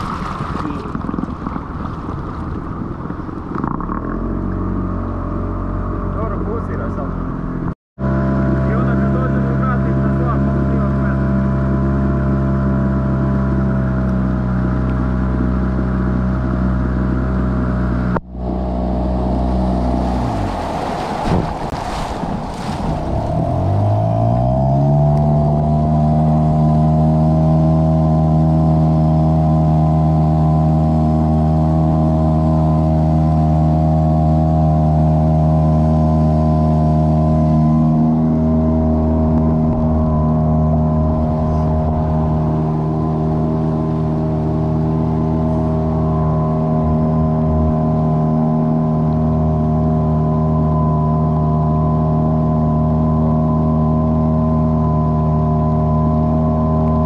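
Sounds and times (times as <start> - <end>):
rushing wind and water: 0.0 - 6.1, 7.6 - 57.0
outboard motor running: 0.0 - 57.0.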